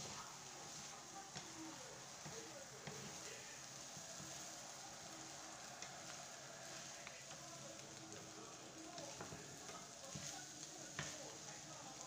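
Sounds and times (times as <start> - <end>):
meat sizzling in a wok: 0.0 - 12.0
spatula clicking against pan: 9.0 - 11.2.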